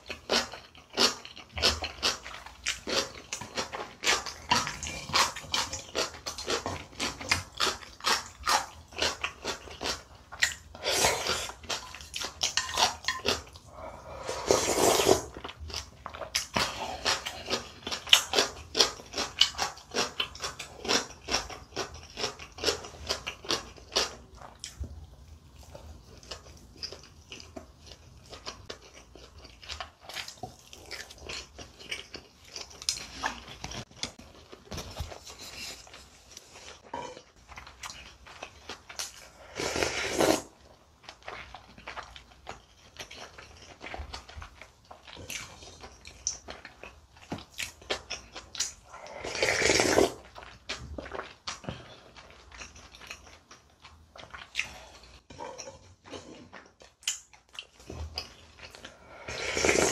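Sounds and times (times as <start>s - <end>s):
wet chewing: 0.0s - 59.9s
slurping noodles: 10.7s - 12.0s, 13.7s - 15.4s, 39.2s - 40.6s, 48.8s - 50.3s, 58.8s - 59.9s.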